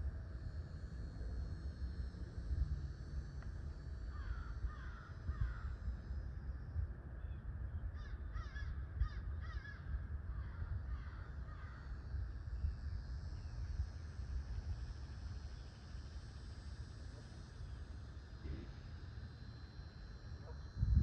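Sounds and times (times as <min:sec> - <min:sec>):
steady low rumble: 0:00.0 - 0:21.0
crows cawing: 0:04.1 - 0:05.8, 0:07.9 - 0:12.0.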